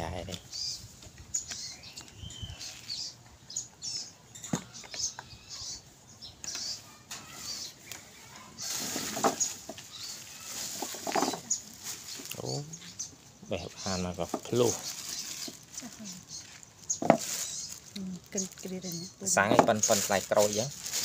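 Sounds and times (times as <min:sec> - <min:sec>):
small birds chirping: 0:00.0 - 0:21.0
plastic bag rustling: 0:07.2 - 0:12.7, 0:13.8 - 0:21.0.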